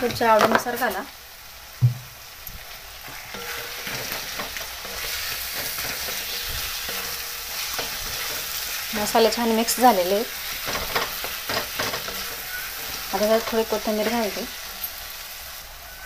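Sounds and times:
food sizzling in a pan: 0:00.0 - 0:16.0
dull knock: 0:01.8 - 0:02.1
wooden spatula scraping metal pan: 0:03.1 - 0:15.0.

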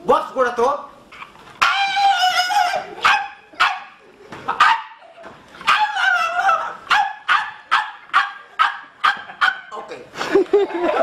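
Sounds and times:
wavering yelp: 0:01.1 - 0:09.9
dog barking: 0:02.7 - 0:04.0, 0:04.6 - 0:05.0, 0:05.6 - 0:09.7.

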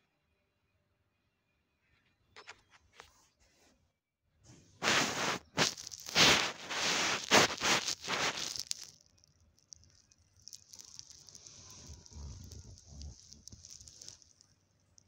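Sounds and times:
faint hiss: 0:04.5 - 0:15.0.

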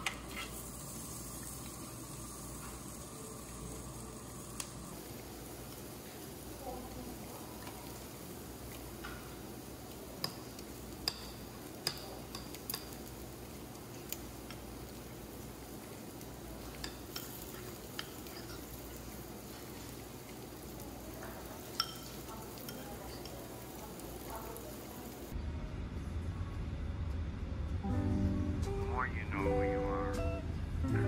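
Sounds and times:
faint steady hiss: 0:00.0 - 0:25.4
spoon clinking against bowl: 0:21.6 - 0:23.4.

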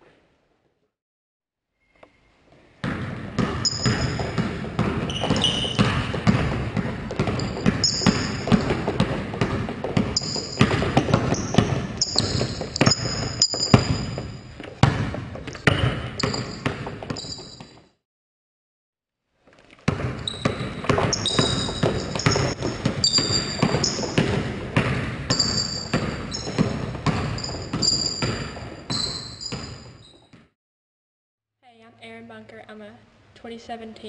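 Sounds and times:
basketball dribbling on wooden floor: 0:02.8 - 0:17.8, 0:19.8 - 0:30.4
sneaker squeaks: 0:03.4 - 0:18.0, 0:19.8 - 0:30.5.

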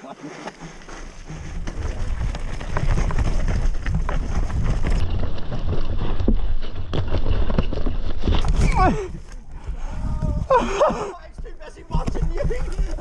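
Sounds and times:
bike clattering over rough ground: 0:00.4 - 0:09.8, 0:10.4 - 0:13.0
wind buffeting microphone: 0:08.4 - 0:13.0.

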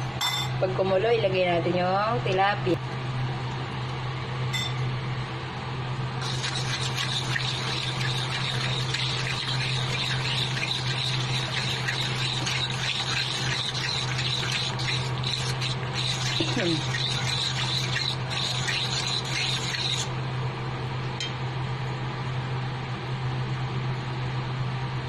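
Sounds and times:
broth bubbling in a wok: 0:06.2 - 0:20.2.

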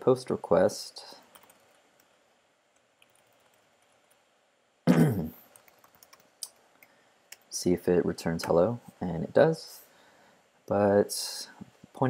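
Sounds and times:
faint keyboard typing: 0:01.1 - 0:04.4, 0:05.4 - 0:07.6.

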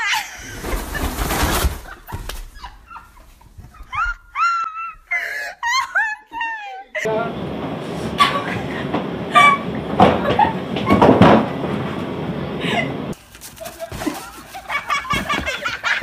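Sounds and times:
young women laughing and squealing: 0:00.0 - 0:07.1, 0:08.1 - 0:11.0, 0:12.6 - 0:16.0
moving train rumble: 0:07.1 - 0:13.2.

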